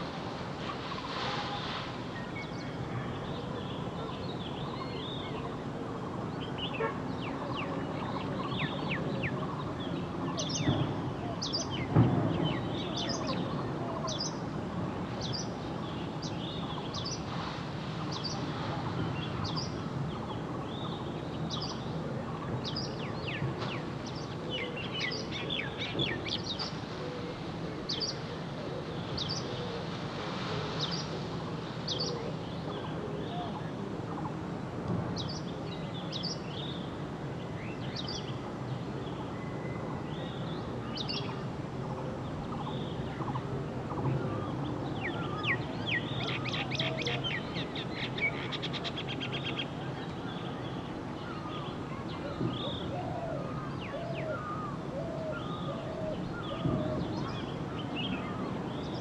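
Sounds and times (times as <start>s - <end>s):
low background noise: 0.0s - 59.0s.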